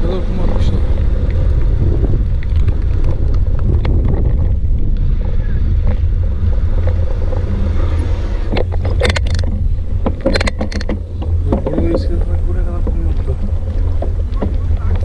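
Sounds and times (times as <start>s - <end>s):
bicycle tyre rumbling on dirt: 0.0s - 15.0s
sharp clicks and rattles: 0.1s - 15.0s.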